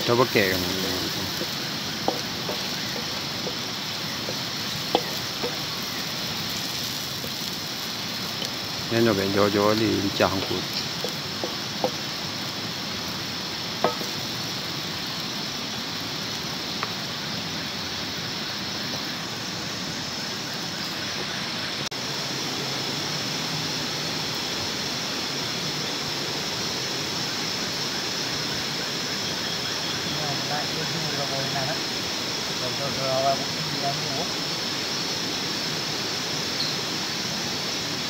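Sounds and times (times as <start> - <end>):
food sizzling in oil: 0.0 - 38.0.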